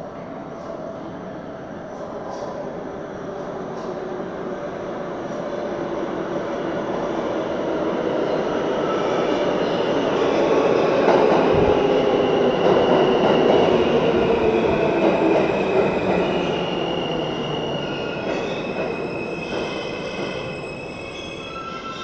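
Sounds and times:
subway train wheels rumbling: 0:00.0 - 0:22.0
high wheel squeals: 0:17.7 - 0:22.0.

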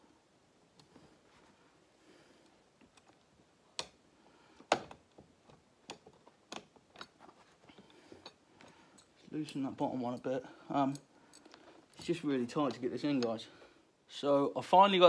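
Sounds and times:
chair parts clicking and knocking: 0:04.6 - 0:10.2.

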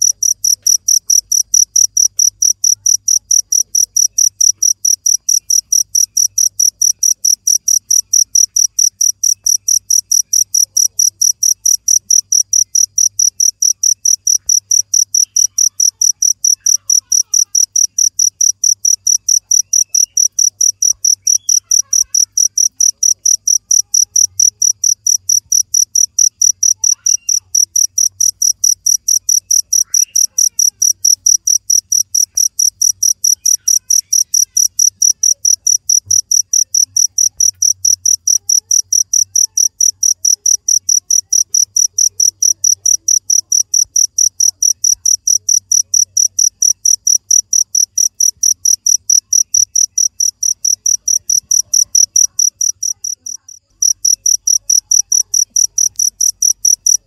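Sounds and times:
cricket chirping: 0:00.0 - 0:57.0.

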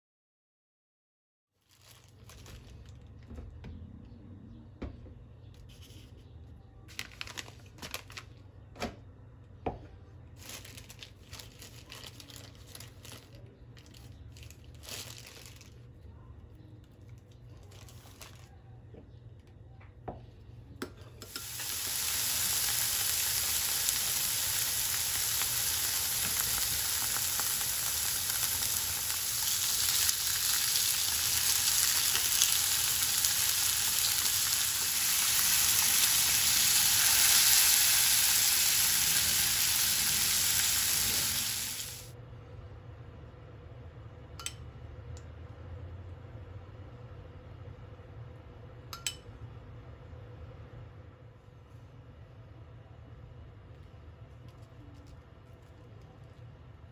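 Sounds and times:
plastic bag rustling: 0:01.6 - 0:03.2, 0:06.9 - 0:08.4, 0:10.4 - 0:16.0, 0:17.5 - 0:18.6
meat sizzling in frying pan: 0:21.3 - 0:42.1.

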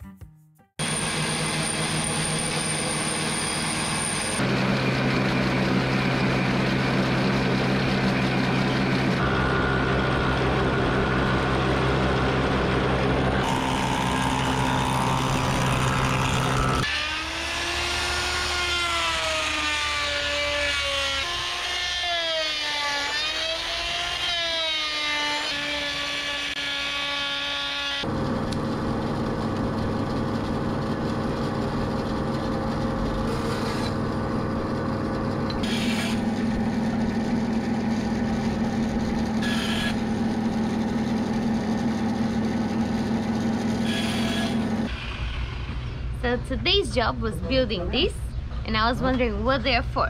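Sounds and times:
wood router motor whine: 0:00.8 - 0:45.5
bandsaw ripping wood: 0:13.4 - 0:19.4.

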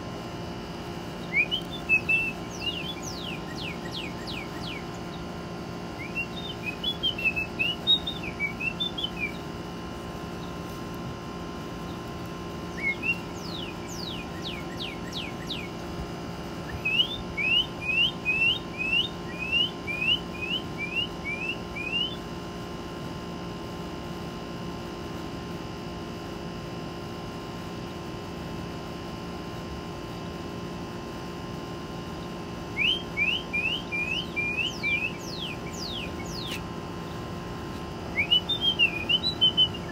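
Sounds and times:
cardinal whistling: 0:01.2 - 0:04.8, 0:06.0 - 0:09.4, 0:12.8 - 0:15.7, 0:16.8 - 0:22.1, 0:32.8 - 0:36.6, 0:38.1 - 0:39.9.

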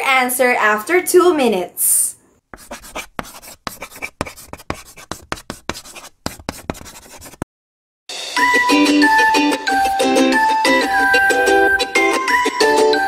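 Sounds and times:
chalk tapping and scratching: 0:02.5 - 0:07.4
music: 0:08.1 - 0:13.0.

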